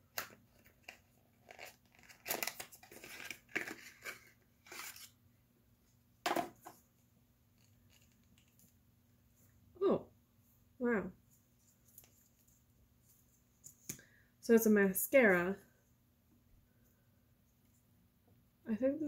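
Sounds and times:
packaging crinkling: 0.5 - 5.1.

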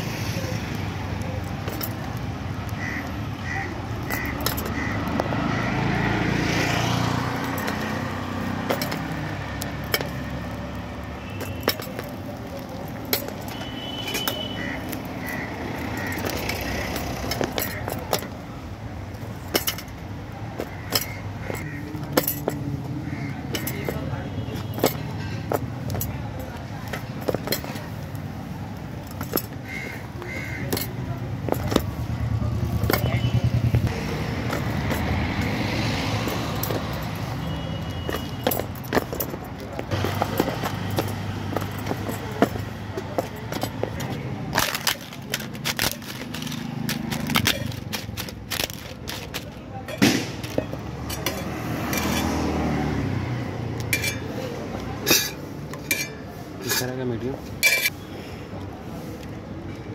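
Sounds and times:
street traffic hum: 0.0 - 59.9
knife clinking against iron brazier: 53.8 - 58.0.

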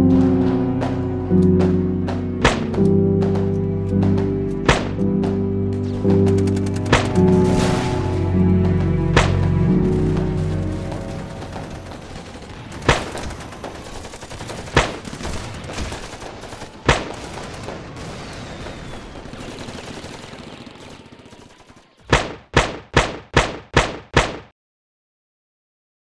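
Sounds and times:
dark ambient drone: 0.0 - 13.3.

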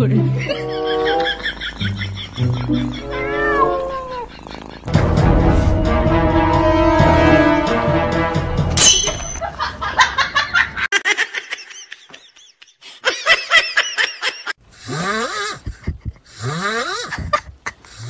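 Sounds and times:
person laughing: 0.2 - 4.9, 9.4 - 14.6, 15.3 - 18.0.

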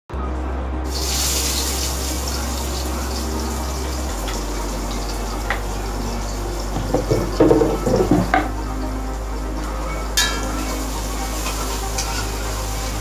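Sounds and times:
low steady hum: 0.1 - 13.0
shallots sizzling in hot oil: 0.9 - 3.6, 10.2 - 13.0
utensils knocking: 6.8 - 8.5.

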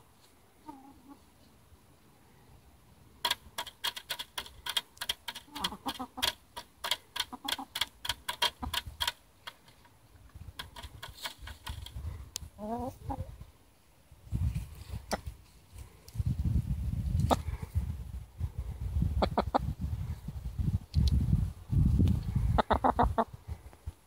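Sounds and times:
hen clucking: 0.6 - 1.3, 4.2 - 9.6, 10.6 - 13.4, 19.2 - 19.7, 22.5 - 23.4
beaks pecking bucket: 3.2 - 12.0.

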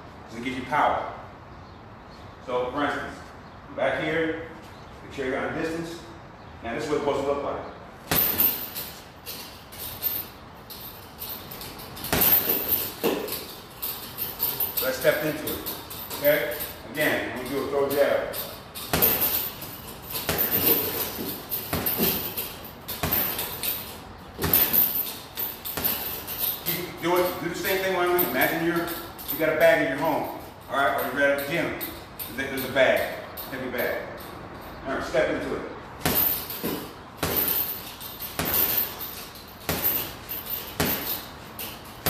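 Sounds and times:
gloves thudding on heavy bag: 8.1 - 8.8, 12.0 - 13.3, 20.2 - 23.7, 24.3 - 26.2, 36.0 - 41.3
bag chains clinking: 8.1 - 34.8, 36.0 - 42.0.

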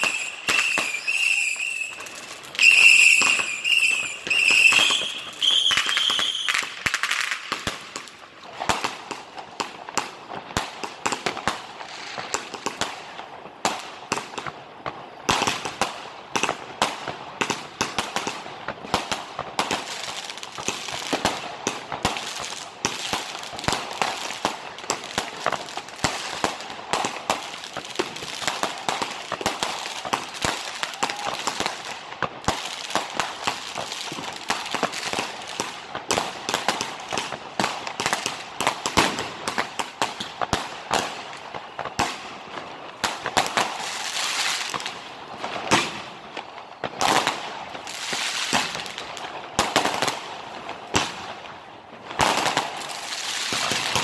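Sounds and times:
firework whistle: 0.0 - 7.4, 28.2 - 31.9
firecrackers and shells bursting: 0.0 - 54.0.

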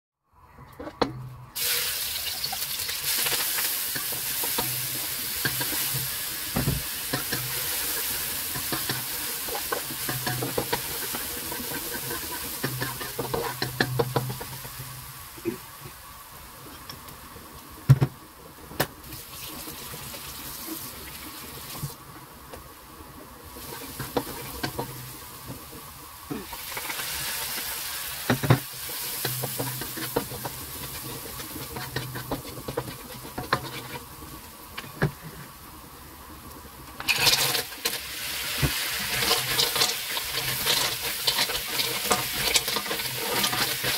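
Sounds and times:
garlic sizzling in hot oil: 1.5 - 17.8, 19.0 - 22.0, 23.4 - 43.9
spatula scraping a wok: 3.1 - 15.1, 23.6 - 25.2, 26.6 - 34.9, 38.6 - 43.9.

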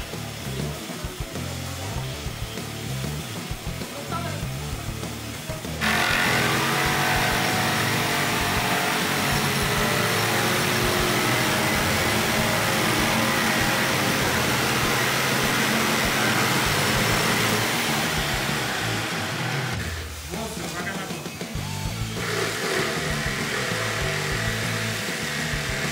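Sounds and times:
electric jigsaw sawing wood: 5.1 - 20.2, 22.0 - 25.9.

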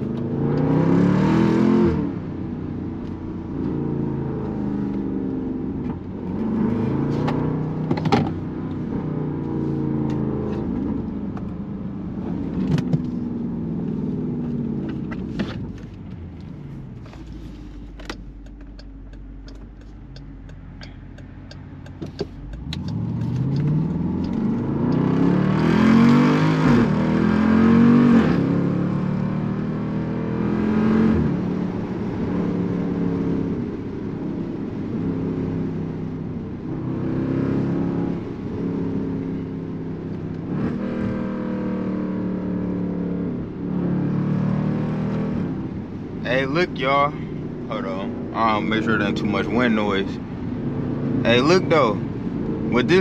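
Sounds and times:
car engine revving through gears: 0.0 - 2.4, 3.0 - 53.0
car engine idling: 2.2 - 24.9, 45.6 - 53.0
light regular ticking: 18.0 - 25.0.

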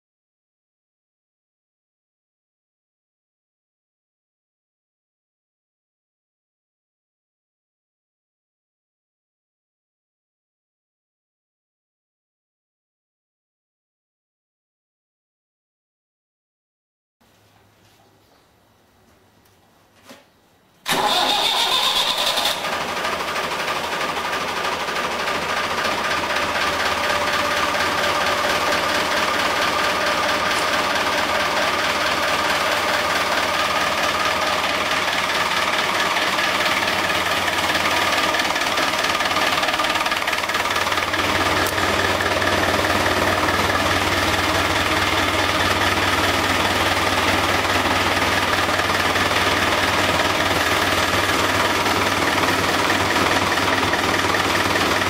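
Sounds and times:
diesel tractor engine idling: 20.8 - 55.0.

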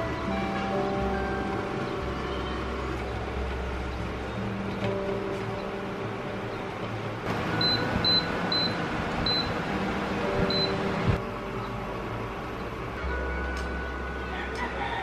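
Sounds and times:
cooker touch panel beeping: 7.4 - 9.6, 10.4 - 10.8.

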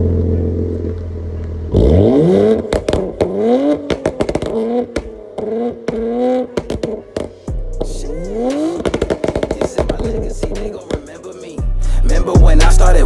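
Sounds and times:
car engine revving: 0.0 - 13.0
exhaust pops and cracks: 2.6 - 11.2.

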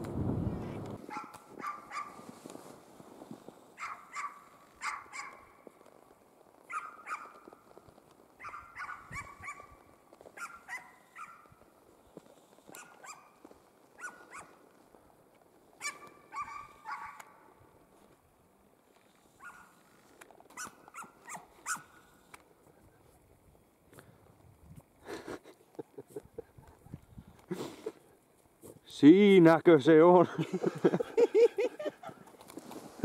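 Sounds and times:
hound baying: 10.4 - 11.5, 15.8 - 17.3.

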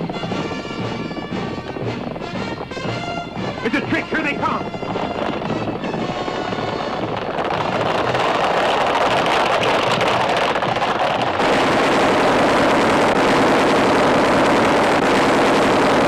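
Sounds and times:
rapid gunfire: 6.4 - 16.0.

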